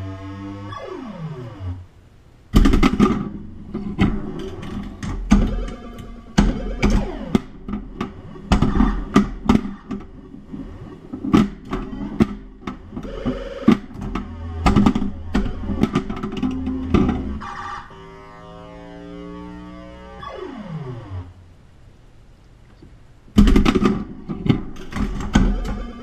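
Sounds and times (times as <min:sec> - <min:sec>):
pinball flippers and bumpers clacking: 0:02.6 - 0:17.4, 0:23.4 - 0:26.0
electronic game beeps and tones: 0:05.3 - 0:07.6, 0:12.9 - 0:21.3, 0:25.3 - 0:26.0.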